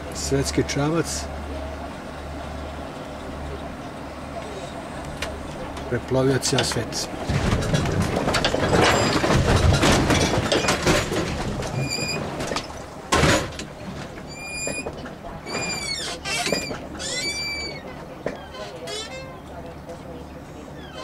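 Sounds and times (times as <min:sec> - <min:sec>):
boat engine rumbling: 0:00.0 - 0:21.0
high-pitched arched calls: 0:17.0 - 0:17.8.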